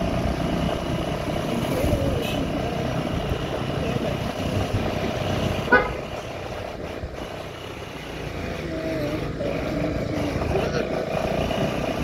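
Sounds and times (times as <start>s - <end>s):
motorcycle running: 0.0s - 12.0s
horn beep: 5.7s - 6.0s.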